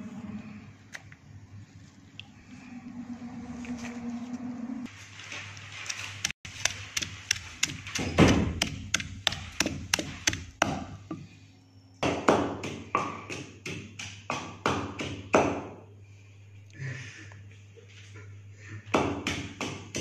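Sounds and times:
pestle pounding in mortar: 6.2s - 11.3s.

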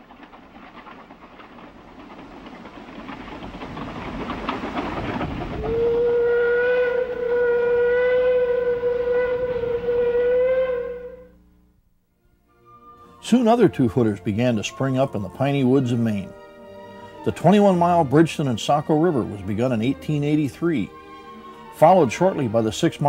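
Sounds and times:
steam locomotive running: 0.0s - 11.4s, 13.0s - 23.0s
steam whistle blast: 5.6s - 11.5s.

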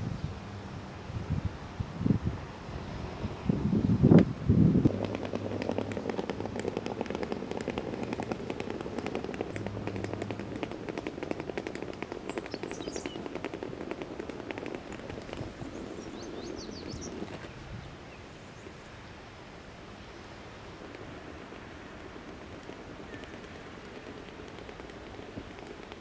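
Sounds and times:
suitcase wheels rattling on bricks: 4.9s - 17.6s, 20.8s - 26.0s.

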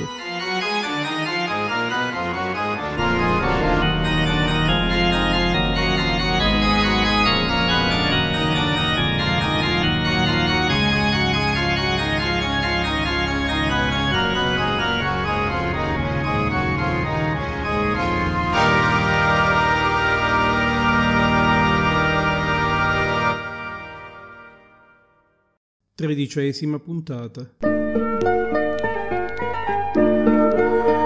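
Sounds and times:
deep organ bass notes: 0.0s - 24.5s
organ chords: 0.0s - 25.1s, 27.6s - 31.0s.

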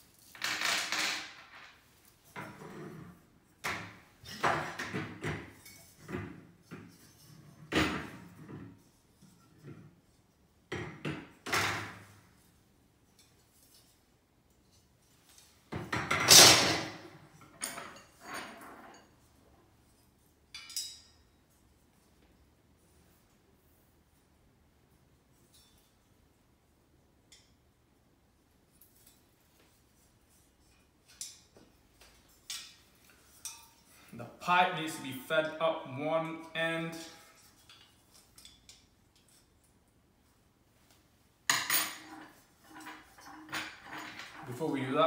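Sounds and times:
metal rods clattering on a desk: 0.1s - 10.0s, 15.2s - 19.3s, 20.5s - 21.3s, 30.7s - 34.1s, 41.5s - 45.0s.

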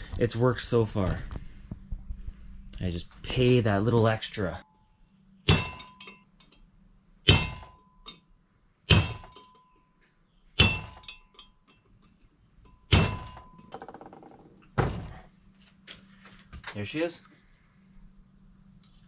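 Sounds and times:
hammer striking metal punch: 5.4s - 6.3s, 7.2s - 8.2s, 8.9s - 9.6s, 10.6s - 11.5s, 12.7s - 13.7s.

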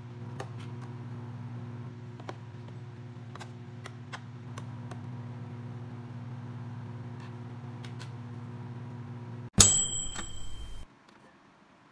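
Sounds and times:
metal spoon knocking box: 9.6s - 10.8s.

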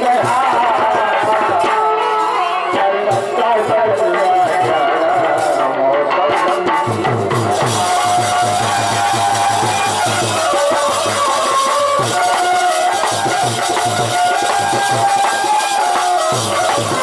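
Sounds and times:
harmonium melody: 0.0s - 17.0s
quick steady drum beat: 6.8s - 17.0s.

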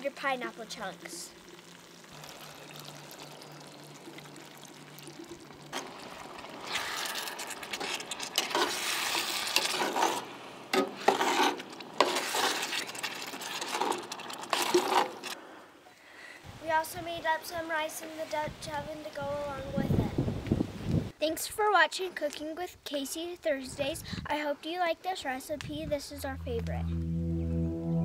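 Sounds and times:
sauce sizzling and bubbling: 0.0s - 10.4s.

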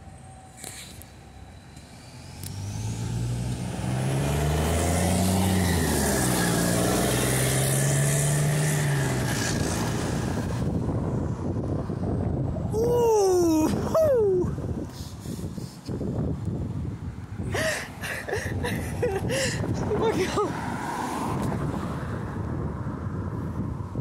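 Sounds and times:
bus diesel engine passing: 0.0s - 12.5s.

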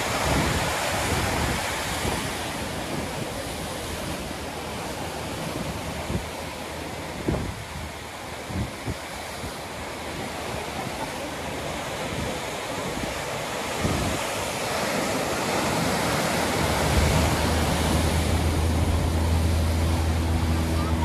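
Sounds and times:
wind buffeting microphone: 0.0s - 4.2s, 7.0s - 21.0s
surf washing over rocks: 0.0s - 21.0s
low engine hum: 14.6s - 21.0s.

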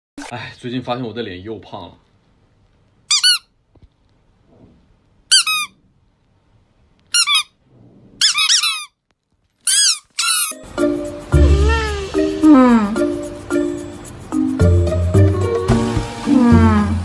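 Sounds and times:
squeaky toy squeaks: 3.1s - 3.6s, 5.3s - 5.8s, 7.1s - 7.6s, 8.2s - 9.0s, 9.6s - 10.6s.

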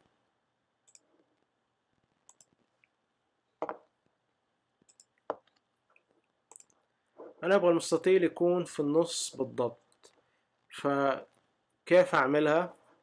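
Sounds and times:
computer mouse clicks: 0.8s - 1.5s, 2.3s - 2.9s, 4.8s - 6.8s.

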